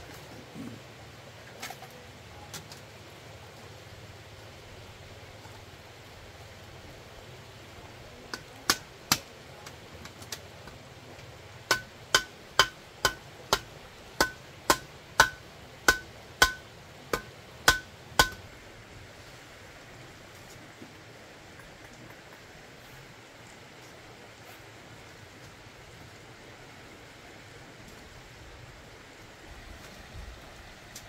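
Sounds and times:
hammer strikes with ringing: 0:11.7 - 0:18.4.

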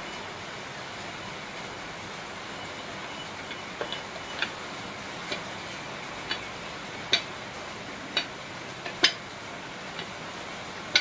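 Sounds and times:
steady hiss: 0:00.0 - 0:11.0
rolling pin clicking on steel plate: 0:06.2 - 0:06.5, 0:07.1 - 0:07.3, 0:08.1 - 0:09.3.

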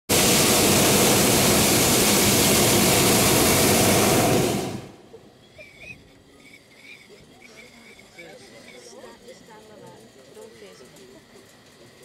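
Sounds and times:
propane burner roaring: 0:00.1 - 0:05.2.

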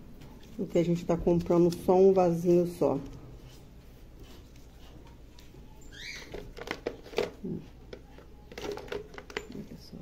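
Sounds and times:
plastic squeak: 0:05.8 - 0:06.7
plastic pots clicking: 0:06.2 - 0:09.7.

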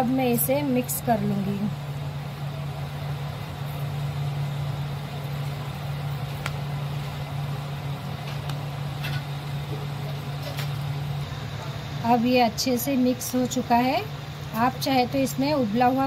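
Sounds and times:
low mechanical hum: 0:00.0 - 0:16.0.

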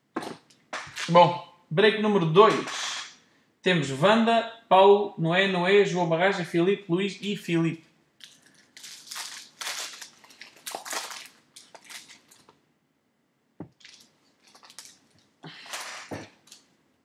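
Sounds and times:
foil wrapper tearing and crinkling: 0:08.2 - 0:12.5, 0:13.8 - 0:16.6.

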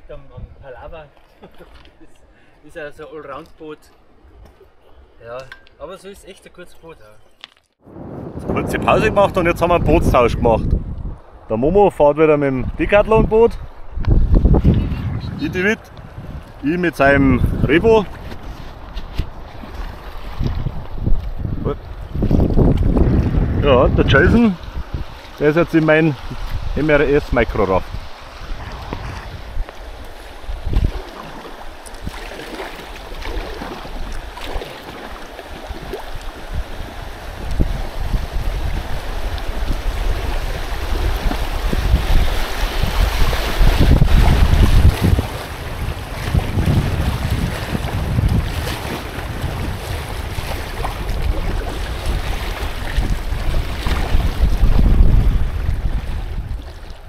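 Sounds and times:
wind buffeting on microphone: 0:00.0 - 0:00.9, 0:07.8 - 0:32.3, 0:35.6 - 0:57.0
low bump: 0:07.8 - 0:11.4
river current lapping against hull: 0:13.3 - 0:57.0.

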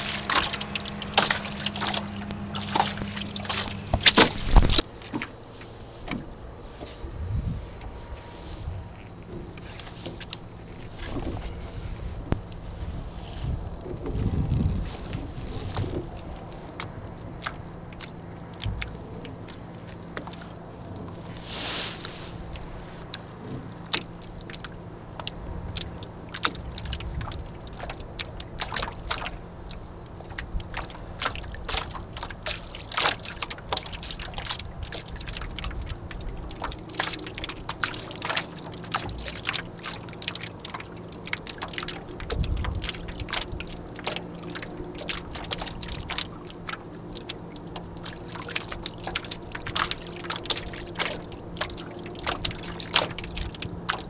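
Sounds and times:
water splashing against boat hull: 0:00.0 - 0:54.0
low rumble: 0:06.2 - 0:32.6.

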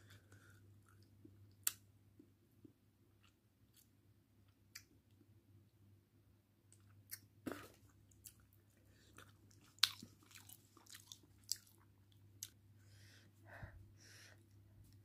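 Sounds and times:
wet clicks and squelches of eating: 0:09.2 - 0:12.6.

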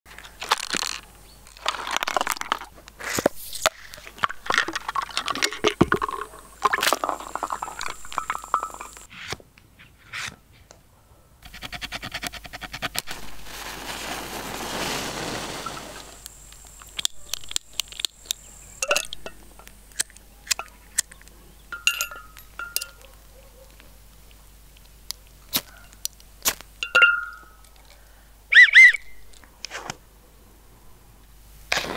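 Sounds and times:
water sloshing in a jar: 0:04.2 - 0:09.1
glass jar clinks: 0:05.2 - 0:09.1, 0:18.8 - 0:19.7, 0:21.7 - 0:23.0, 0:26.8 - 0:27.7.

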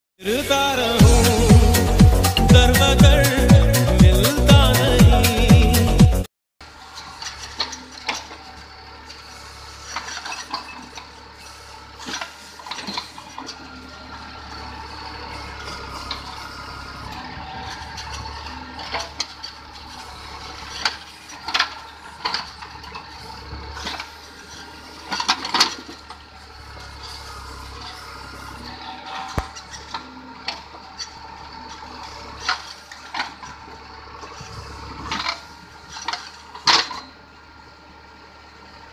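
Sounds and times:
tractor diesel engine running: 0:00.2 - 0:38.9
bucket clanking and rattling: 0:23.8 - 0:26.2, 0:34.4 - 0:37.1.

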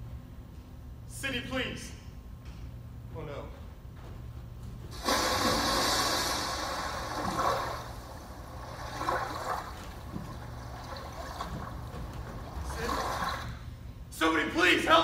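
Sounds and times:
body splashing into water: 0:05.0 - 0:13.6.

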